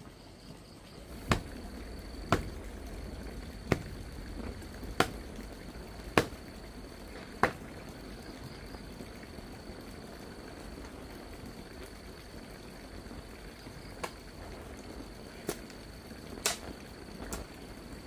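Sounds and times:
sharp chopping strikes: 1.2 - 1.6, 2.3 - 2.6, 3.7 - 4.0, 5.0 - 5.2, 6.2 - 6.4.

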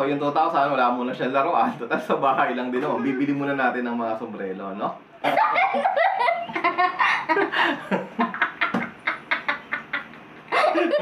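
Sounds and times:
man and boy laughing: 5.2 - 11.0.

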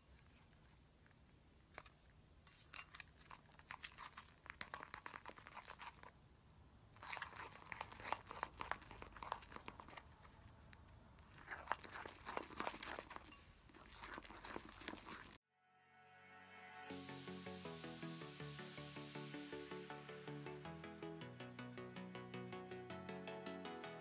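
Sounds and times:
slime stirred crackling and popping: 0.0 - 15.4.

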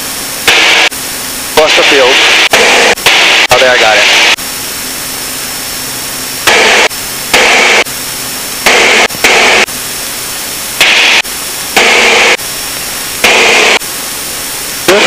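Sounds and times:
aircraft cabin noise: 0.0 - 15.0
static bursts: 0.4 - 4.4, 6.4 - 7.9, 8.5 - 9.8, 10.7 - 15.0.

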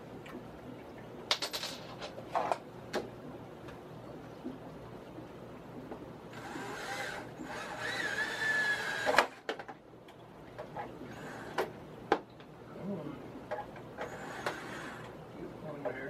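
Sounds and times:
cordless drill motor whining: 6.4 - 9.3.

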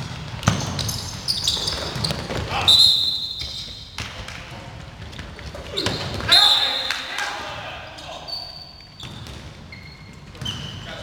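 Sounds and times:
balls thudding: 0.0 - 2.8, 3.4 - 6.4, 8.9 - 10.9
sneakers squeaking on gym floor: 0.0 - 7.1, 7.9 - 11.0.

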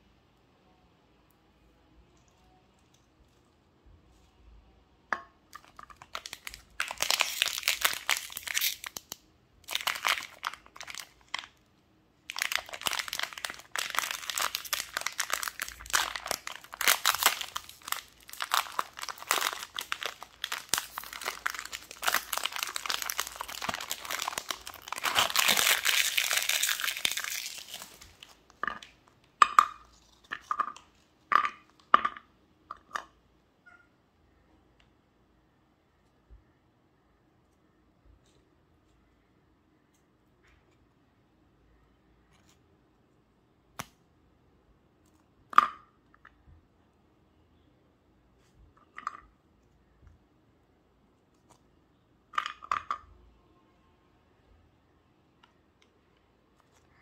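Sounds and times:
plastic wrapper crinkling and tearing: 5.5 - 11.6, 12.2 - 29.0.

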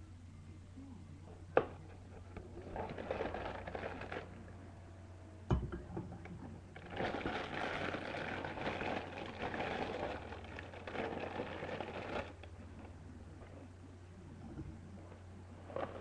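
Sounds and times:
cardboard crackling and rustling: 2.6 - 4.4, 6.8 - 12.4.

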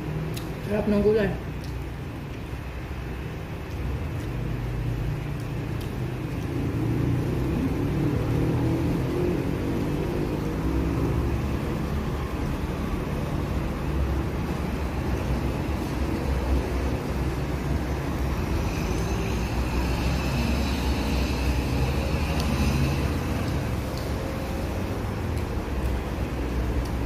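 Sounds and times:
vehicle engine rumble: 1.5 - 27.0.

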